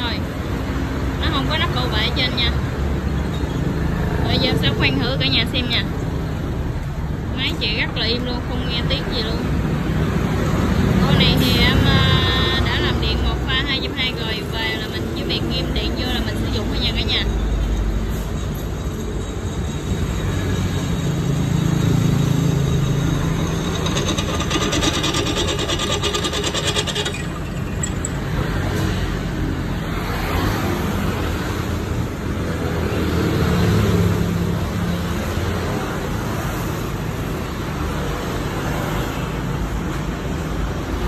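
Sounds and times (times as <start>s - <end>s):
drill bit cutting steel chatter: 20.8s - 28.5s
drill press running: 22.8s - 28.4s.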